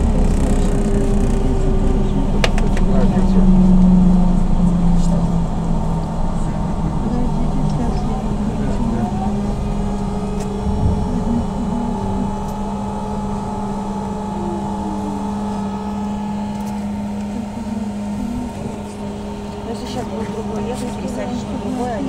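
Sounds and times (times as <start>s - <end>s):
vehicle bump: 0.0s - 13.4s
road rumble: 0.0s - 22.0s
trolleybus electric hum: 0.0s - 22.0s.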